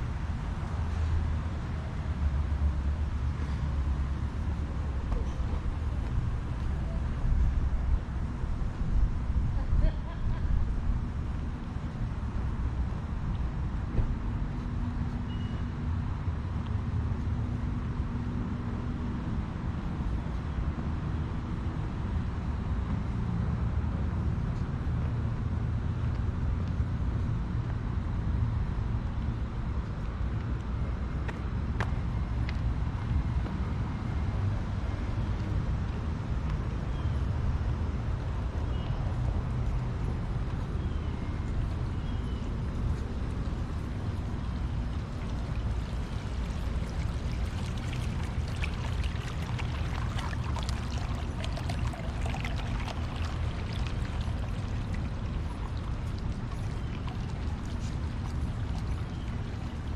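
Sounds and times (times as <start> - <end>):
distant road traffic rumble: 0.0 - 59.9
fountain water splashing on stones: 42.8 - 59.9.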